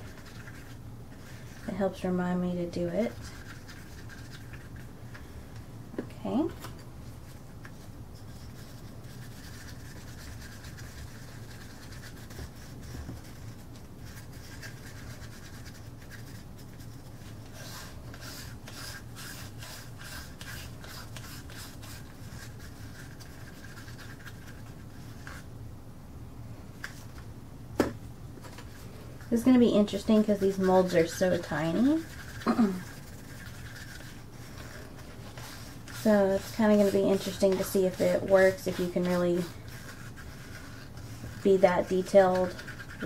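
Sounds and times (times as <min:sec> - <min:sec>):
steady low hum: 0:00.0 - 0:43.0
stir stick scraping in cup: 0:28.7 - 0:43.0.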